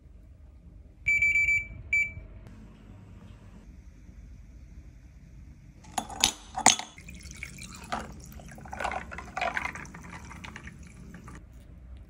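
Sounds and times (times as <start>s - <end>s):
berries clinking into glass: 5.9s - 11.4s
water pouring into glass: 6.6s - 11.4s.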